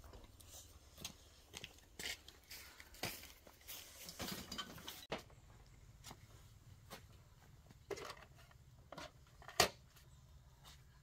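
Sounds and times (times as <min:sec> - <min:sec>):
footsteps in dry grass: 0:00.2 - 0:04.0.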